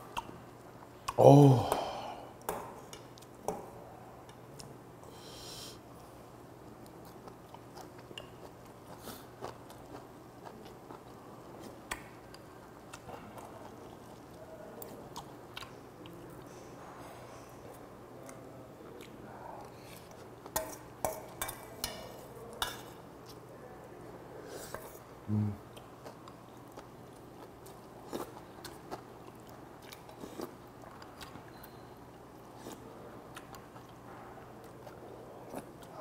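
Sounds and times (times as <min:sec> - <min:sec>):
person chewing: 0:06.9 - 0:16.2, 0:25.6 - 0:31.8, 0:32.4 - 0:34.0.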